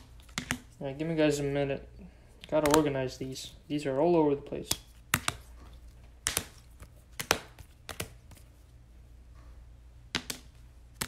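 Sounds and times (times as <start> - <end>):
cards being sorted by hand: 0.0 - 1.4, 2.3 - 3.7, 4.5 - 8.8
cards tapping on table: 10.1 - 10.5.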